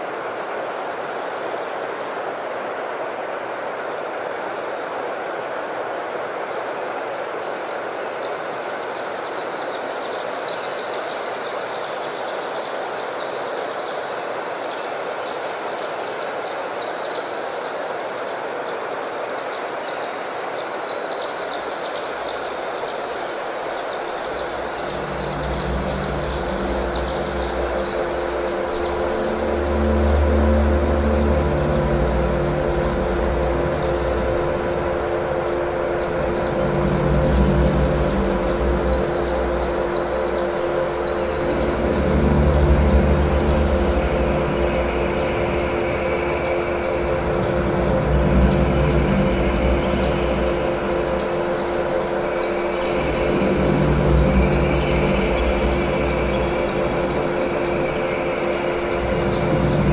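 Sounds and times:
steady rushing noise: 22.1s - 59.9s
droning synthesizer tones: 23.9s - 59.9s
high sweeping whistle-like tone: 24.2s - 59.9s
low bass notes: 24.4s - 51.7s, 52.8s - 57.9s.

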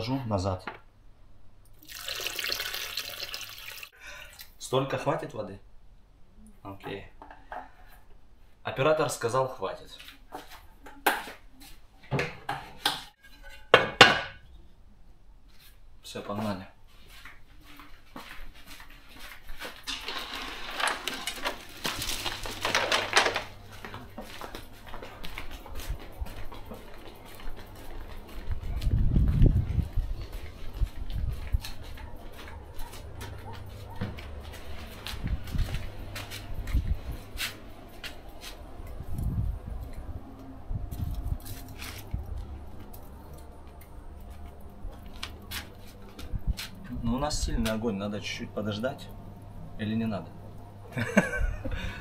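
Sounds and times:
footsteps: 16.8s - 40.2s, 40.8s - 48.4s
wood fire crackling and popping: 19.8s - 25.5s.

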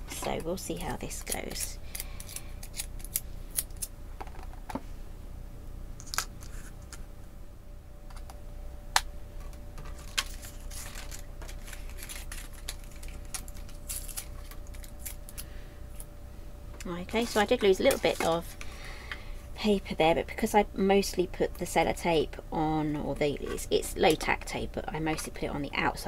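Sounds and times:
tape peeling: 9.9s - 15.5s.

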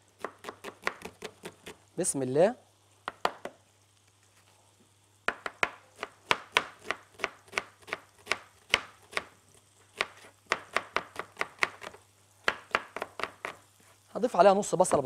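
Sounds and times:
knife chopping on cutting board: 0.2s - 1.8s, 5.3s - 9.3s, 10.0s - 13.6s.

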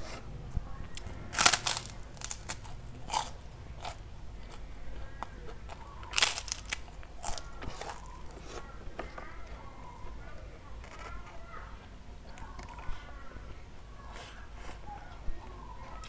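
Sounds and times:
cracker crunching: 0.0s - 16.0s
chewing crunches: 0.9s - 11.4s.

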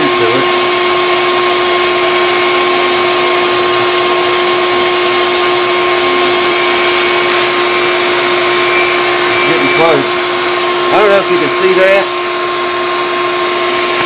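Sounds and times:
rotary tool sanding wood: 0.0s - 14.0s.

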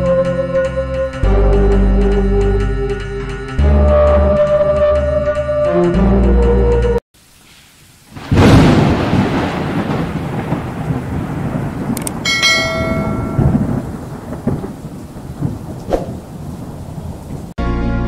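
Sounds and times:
rain-like hiss: 7.2s - 17.6s
thunder crash and rumble: 8.2s - 17.5s
click: 12.0s - 12.2s
notification bell chime: 12.3s - 13.7s.

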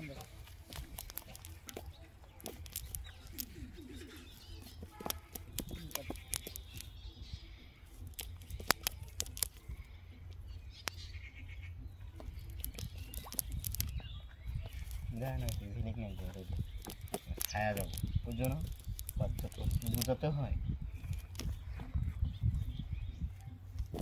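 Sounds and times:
net threads clicking and snapping: 0.0s - 7.0s, 7.9s - 11.2s, 12.2s - 14.0s, 14.6s - 20.3s, 20.9s - 21.6s, 23.8s - 24.0s
birds chirping faintly: 0.0s - 24.0s.

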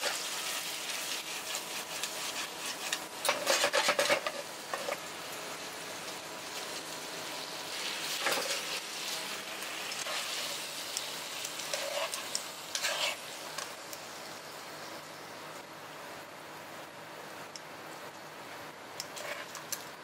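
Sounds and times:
spaghetti sizzling in pan: 0.0s - 15.4s
metal tongs scraping pan: 1.3s - 5.0s, 8.1s - 8.8s, 11.6s - 13.2s.

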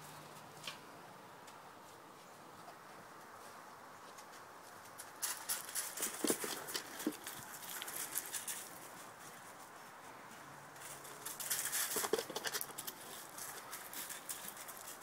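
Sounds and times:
footsteps on gravel: 5.4s - 9.6s.

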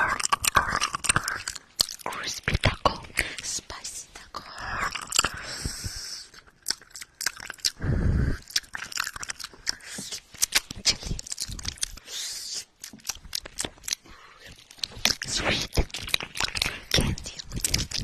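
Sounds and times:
wet mouth clicks and smacks: 0.0s - 3.9s, 4.7s - 7.8s, 8.4s - 18.0s
breathing: 4.4s - 6.4s, 7.8s - 8.6s, 14.0s - 14.6s.

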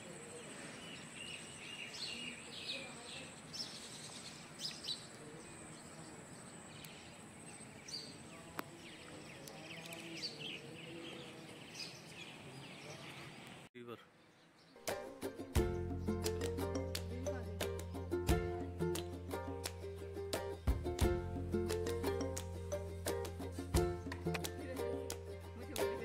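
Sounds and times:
birds chirping: 0.0s - 14.8s.

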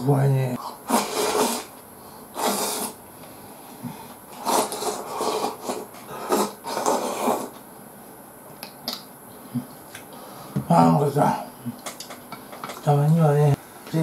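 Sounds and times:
slurping soup: 0.8s - 1.7s, 2.4s - 3.0s, 4.3s - 7.6s.

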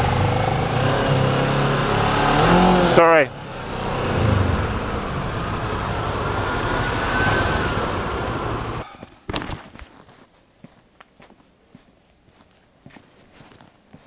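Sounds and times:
motorcycle engine rumble: 0.0s - 8.8s
wind and road rush: 0.0s - 8.8s.

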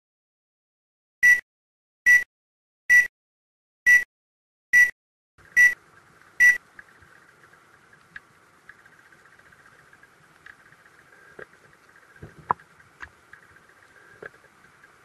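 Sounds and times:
short high countdown beeps: 1.2s - 1.4s, 2.1s - 2.3s, 2.9s - 3.1s, 3.9s - 4.1s, 5.6s - 5.8s
faint underwater hiss with ticks: 5.8s - 15.0s.

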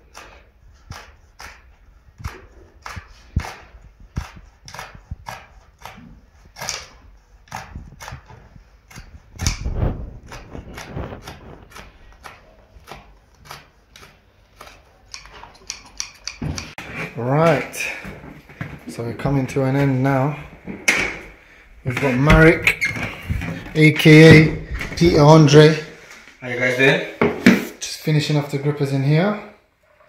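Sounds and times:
shears snipping carpet: 0.0s - 17.0s.

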